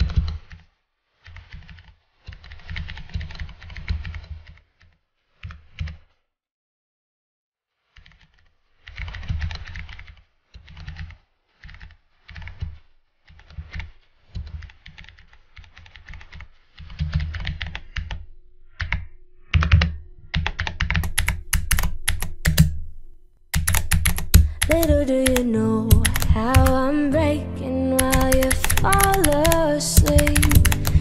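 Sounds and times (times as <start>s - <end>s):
typing on computer keyboard: 1.3s - 4.6s, 8.0s - 18.2s, 18.8s - 22.8s, 23.5s - 27.0s, 28.0s - 31.0s.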